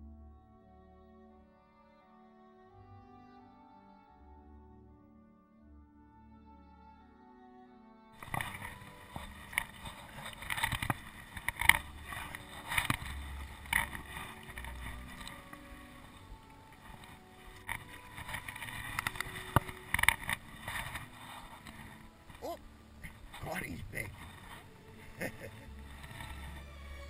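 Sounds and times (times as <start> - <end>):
paddle splashing water: 8.2 - 23.4.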